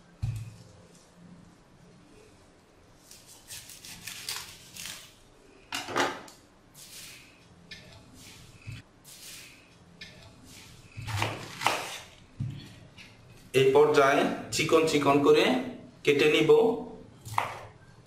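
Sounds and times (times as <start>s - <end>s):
knife cutting cabbage: 3.0s - 5.2s, 9.1s - 12.7s.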